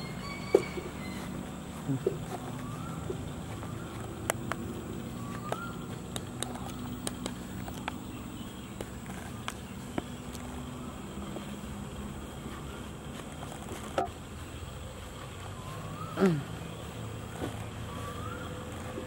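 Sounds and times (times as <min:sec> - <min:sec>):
sharp irregular clicks: 0:03.9 - 0:08.1.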